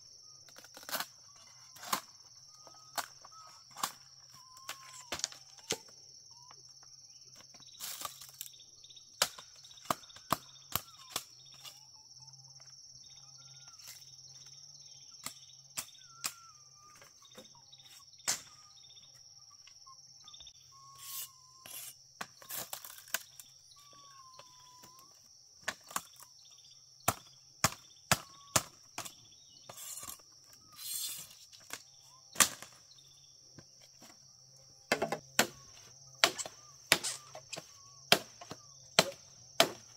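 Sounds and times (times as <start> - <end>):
insects droning: 0.0 - 39.9
bird whistles: 20.3 - 21.8.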